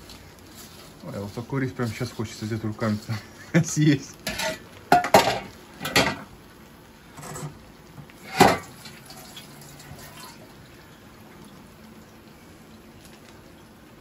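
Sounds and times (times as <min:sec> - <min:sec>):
metal colander clattering: 0:04.2 - 0:06.3, 0:08.2 - 0:09.4.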